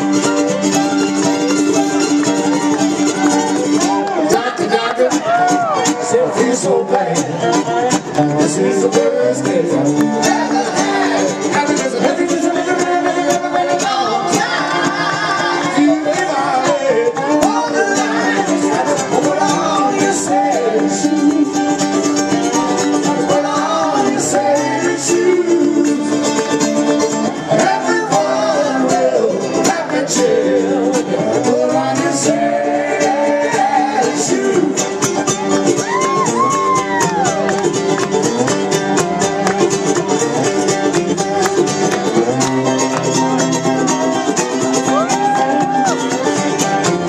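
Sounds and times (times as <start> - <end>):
slide guitar and dobro playing: 0.0 - 47.0
man singing: 4.1 - 21.9, 22.8 - 26.2, 27.3 - 35.0.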